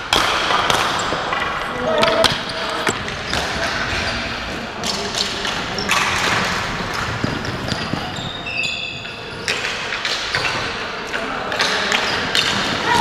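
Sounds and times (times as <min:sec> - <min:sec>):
sticks and ball clacking on concrete: 0:09.0 - 0:13.0.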